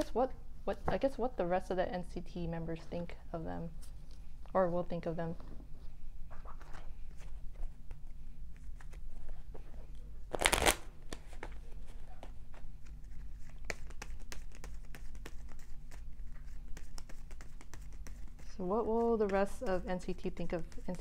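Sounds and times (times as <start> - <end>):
cards being shuffled: 10.3 - 19.8.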